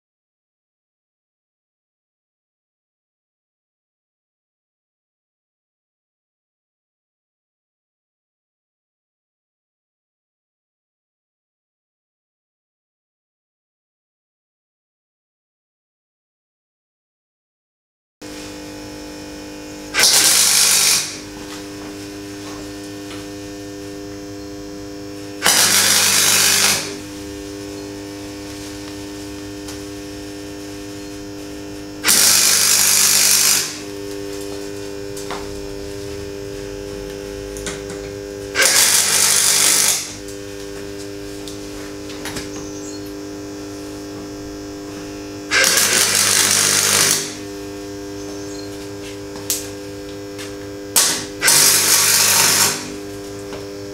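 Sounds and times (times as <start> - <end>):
welder steady hum: 18.2 - 53.9
welding arc crackle: 18.3 - 53.9.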